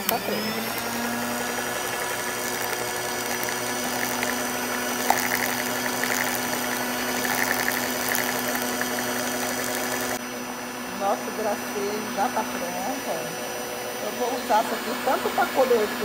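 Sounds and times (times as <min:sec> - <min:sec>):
beaters whipping cream: 0:00.0 - 0:10.2
stand mixer motor humming: 0:00.0 - 0:16.0.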